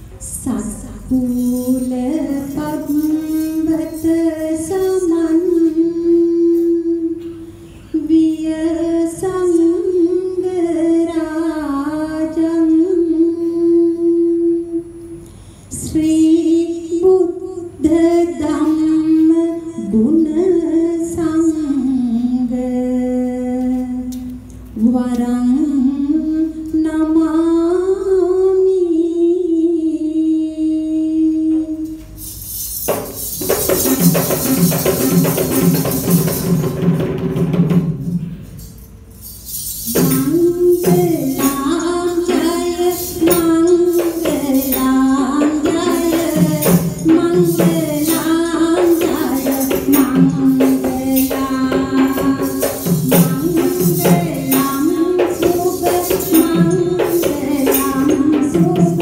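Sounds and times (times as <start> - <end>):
woman singing slow melody: 0.2 - 32.2, 39.9 - 59.0
high jingling: 32.1 - 36.8, 38.4 - 58.3.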